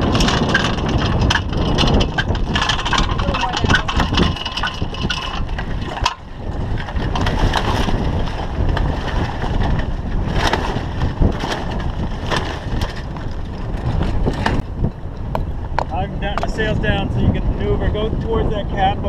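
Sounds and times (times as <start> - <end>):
sharp clicks and knocks: 0.0 - 8.0, 9.6 - 16.6
sailcloth flapping and rustling: 0.0 - 14.8
wind buffeting microphone: 0.0 - 19.0.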